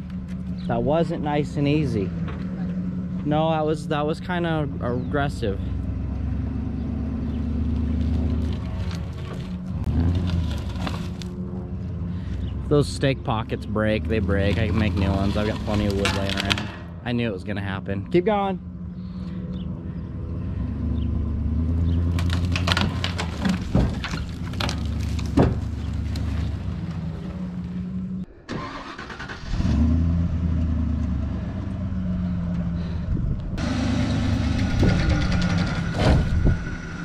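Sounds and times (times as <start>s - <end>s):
truck engine running under load: 18.6s - 37.0s.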